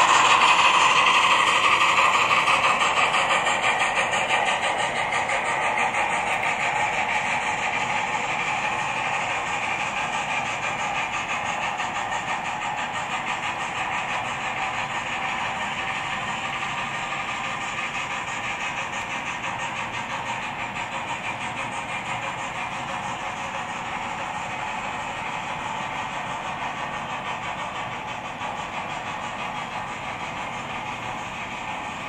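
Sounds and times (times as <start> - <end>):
model train steam chuffs: 0.0 - 32.0
model wagon wheels rolling on track: 0.0 - 32.0.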